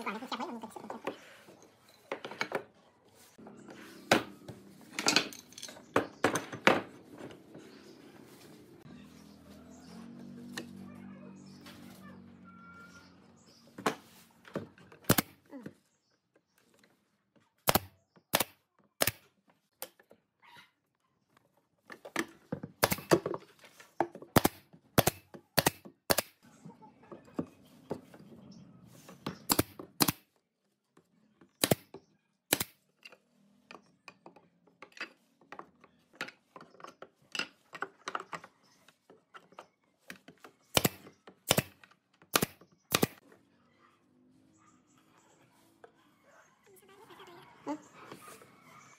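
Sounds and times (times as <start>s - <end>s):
wooden parts knocking together: 4.9s - 7.4s
pneumatic nail gun shots: 15.1s - 15.4s, 17.6s - 19.2s, 22.8s - 23.2s, 24.4s - 26.4s, 29.5s - 30.3s, 31.6s - 31.9s, 32.5s - 32.8s, 40.7s - 43.2s.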